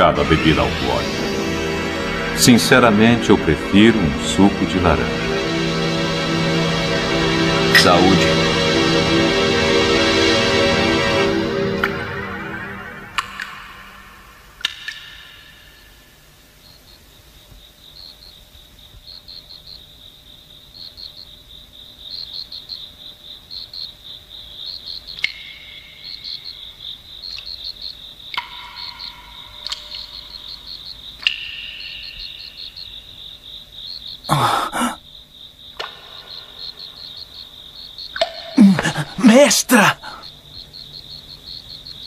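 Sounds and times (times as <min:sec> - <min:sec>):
crickets chirping: 0:13.7 - 0:42.0.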